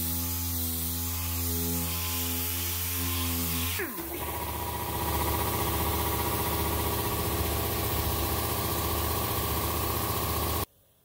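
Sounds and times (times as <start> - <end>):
shop machine humming: 3.8 - 10.7.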